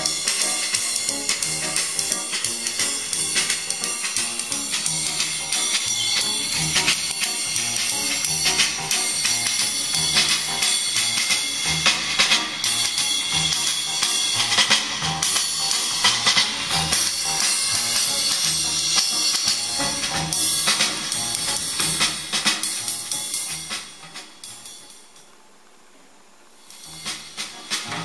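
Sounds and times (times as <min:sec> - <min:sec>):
music with steady drum beat: 0:00.0 - 0:25.2, 0:26.6 - 0:28.0.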